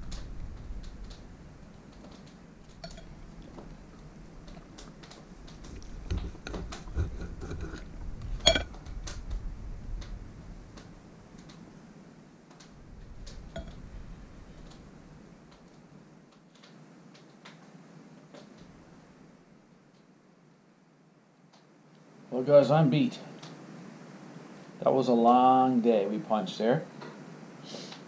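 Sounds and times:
cutlery clinking on plate: 2.8 - 3.2, 8.4 - 8.8.

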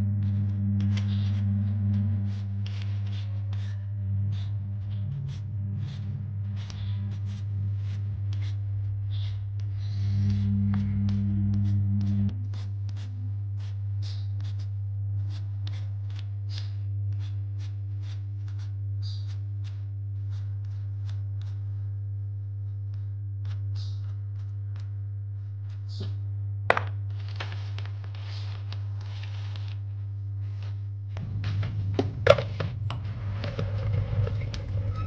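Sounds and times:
soft background music: 0.0 - 14.6, 30.4 - 35.0
steady low hum: 0.0 - 35.0.

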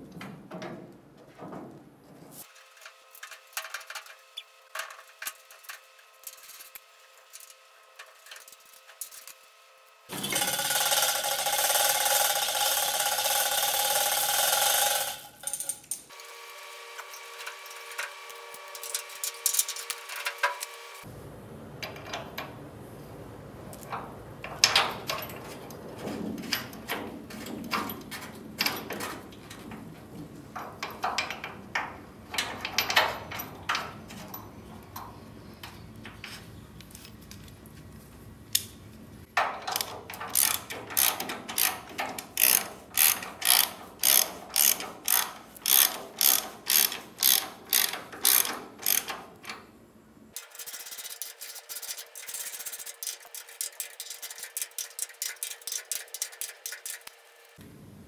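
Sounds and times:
steady mechanical noise: 2.4 - 58.0
steel chain rattling: 10.1 - 16.1, 39.6 - 49.2
hand ratchet clicking: 10.2 - 16.1, 39.6 - 49.5.

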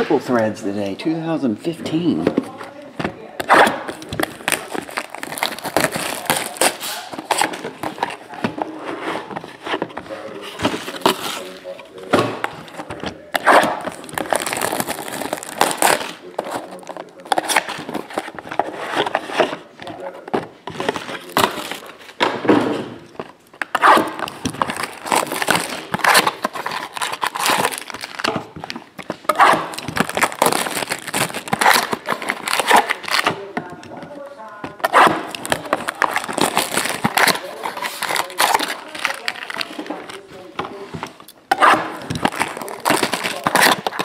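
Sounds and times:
plastic shrink-wrap crinkling and tearing: 3.4 - 8.4, 10.0 - 12.1, 13.2 - 19.2, 20.7 - 22.2, 23.6 - 33.5, 34.1 - 44.0.

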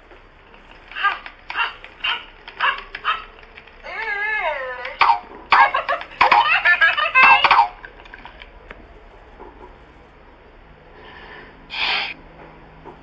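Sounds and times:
toy laughing in electronic voice: 3.9 - 8.2.

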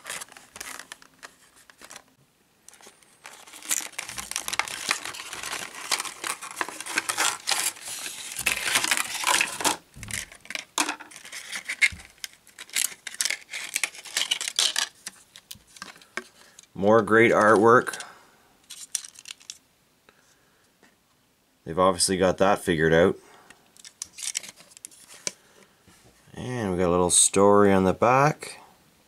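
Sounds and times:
packaging crinkling and rustling: 0.0 - 16.7, 18.7 - 19.6, 23.8 - 25.4.

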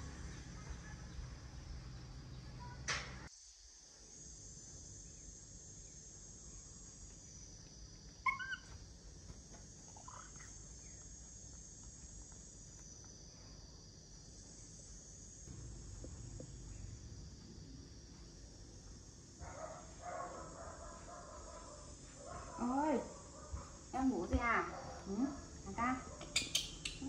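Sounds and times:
baby monkey squeaking: 8.3 - 8.7
steady high hiss: 14.1 - 27.0.

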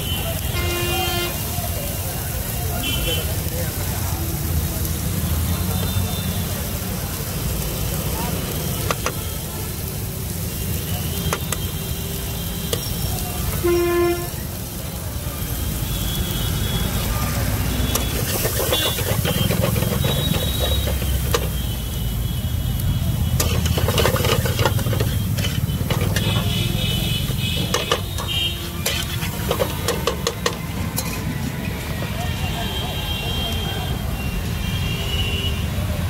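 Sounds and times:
vehicle horn honking: 0.0 - 1.5, 13.5 - 14.4, 24.6 - 29.8
low traffic rumble: 0.0 - 36.0
metal spatula scraping a frying pan: 17.9 - 21.6, 23.4 - 31.4.

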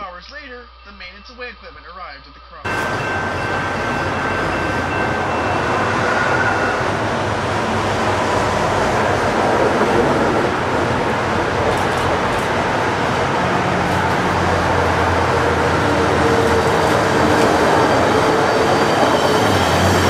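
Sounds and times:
road traffic: 2.7 - 20.0
truck wheels rumbling on rails: 6.8 - 20.0.

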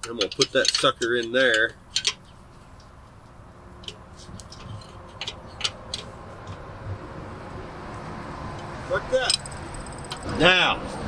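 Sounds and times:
wrench clinking on metal housing: 0.0 - 2.3, 3.8 - 6.6, 9.2 - 10.4.

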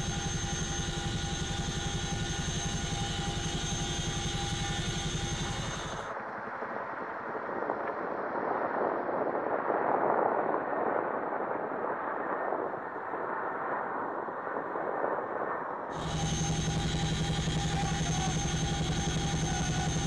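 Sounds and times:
helicopter cabin hum and whine: 0.0 - 6.4, 15.9 - 20.0
helicopter overhead drone: 0.0 - 7.7, 11.8 - 20.0.

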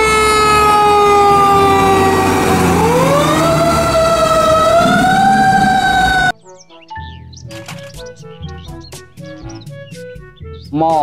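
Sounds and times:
truck engine rumble: 0.0 - 6.3
fire truck siren wailing: 0.0 - 6.4.

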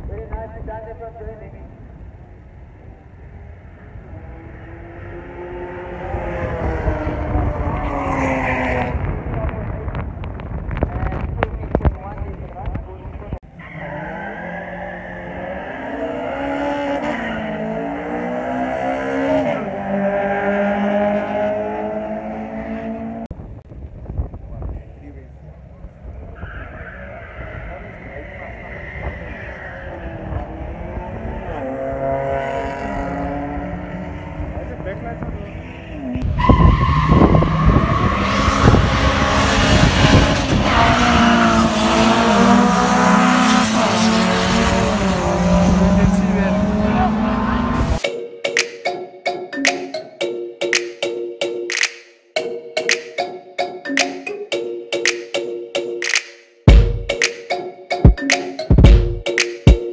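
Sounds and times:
race car engine revving high: 13.8 - 23.3, 29.5 - 48.0.

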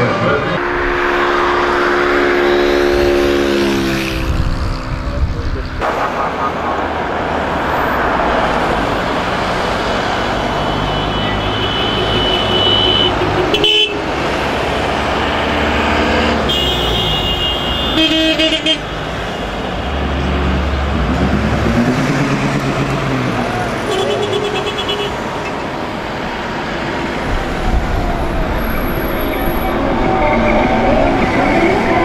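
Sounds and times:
horns tooting: 0.0 - 4.2, 10.4 - 14.2, 15.2 - 25.7
heavy vehicle engine rumbling: 0.0 - 32.0
vehicles driving past: 0.0 - 32.0.

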